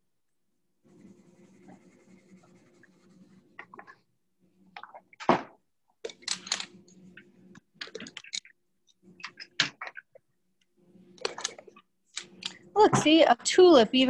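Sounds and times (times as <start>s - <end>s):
scratchy drawing on paper: 0.8s - 3.6s.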